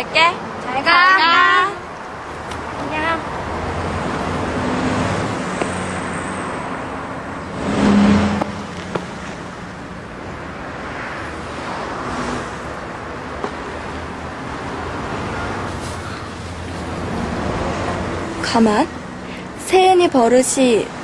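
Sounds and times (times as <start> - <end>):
vehicle passing: 0.0 - 19.9
road traffic noise: 0.0 - 21.0.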